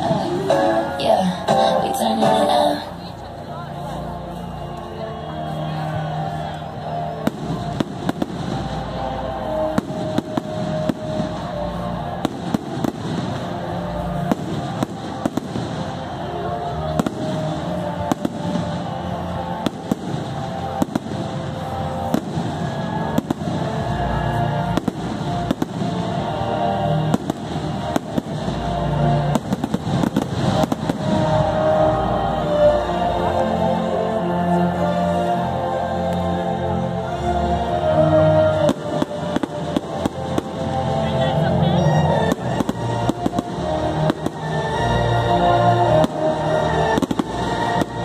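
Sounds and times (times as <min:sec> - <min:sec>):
music playing: 0:00.0 - 0:48.0
fireworks bursting: 0:06.9 - 0:32.6, 0:38.4 - 0:48.0.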